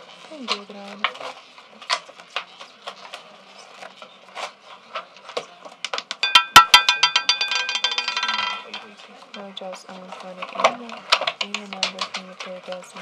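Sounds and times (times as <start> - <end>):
roulette ball clattering: 5.8 - 13.0.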